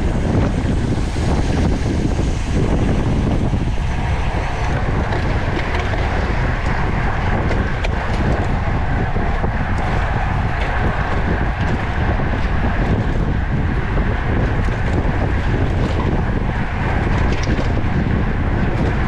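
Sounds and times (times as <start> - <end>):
wind rush on microphone: 0.0 - 19.0.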